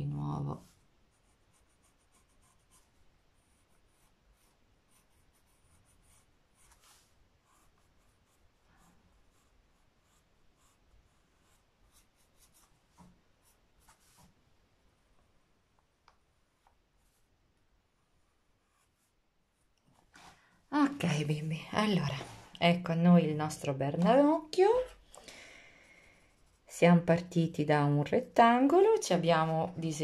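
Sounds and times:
pencil scratching on paper: 0.5 - 14.3, 18.0 - 19.2, 26.2 - 26.8.

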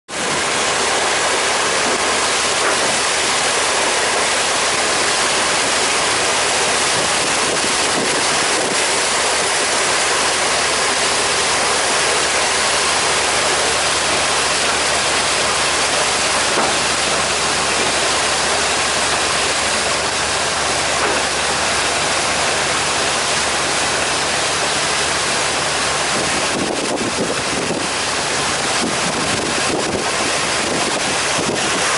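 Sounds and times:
water along boat hull: 0.1 - 31.9
wind on microphone: 5.2 - 10.5, 26.0 - 31.9.

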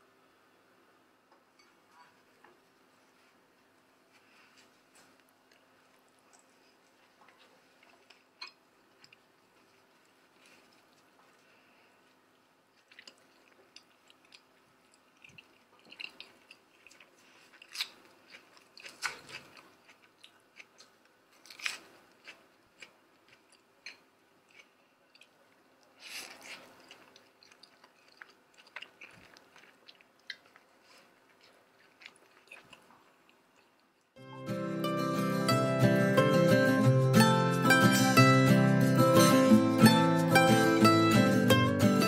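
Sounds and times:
chewing and crunching food: 4.1 - 34.2.

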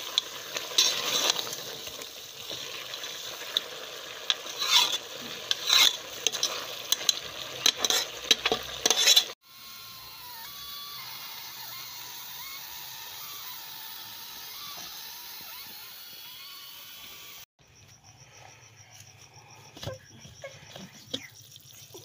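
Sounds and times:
pressure cooker hissing: 0.0 - 17.5.

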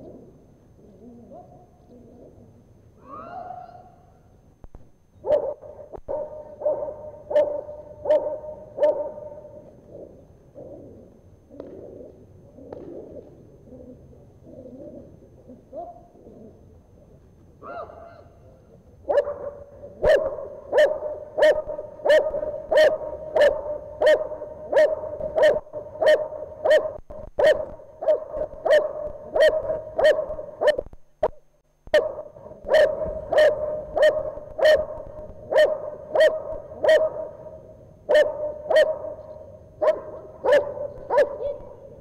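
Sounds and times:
dog barking: 1.3 - 1.7, 5.2 - 9.6, 15.7 - 16.1, 17.6 - 18.3, 19.1 - 30.9, 31.9 - 37.4, 38.1 - 39.2, 39.8 - 41.8.

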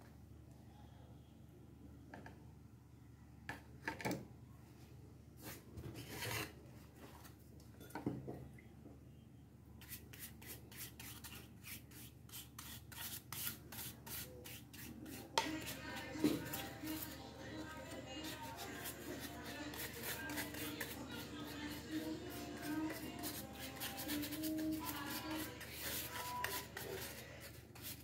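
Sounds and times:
paintbrush scrubbing on plywood: 18.2 - 28.0.

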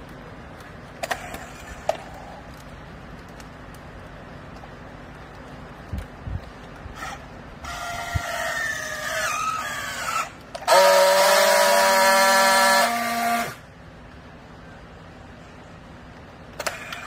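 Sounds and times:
strapping tool motor whine: 6.9 - 13.6
strapping tool steady buzz: 6.9 - 13.6.

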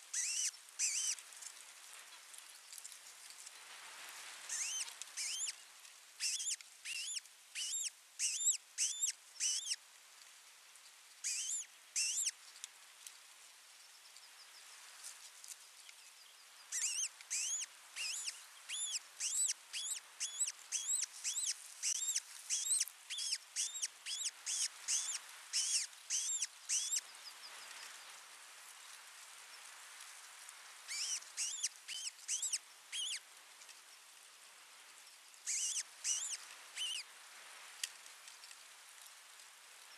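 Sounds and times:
bird whistled chirps: 0.2 - 1.1, 4.5 - 5.5, 6.2 - 9.8, 11.3 - 12.3, 16.8 - 27.0, 30.9 - 33.2, 35.5 - 37.0.

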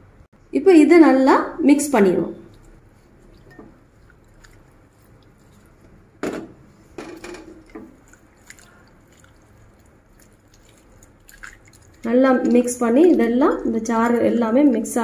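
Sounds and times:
hand squelching prawns in marinade: 2.1 - 6.2, 7.6 - 15.0.

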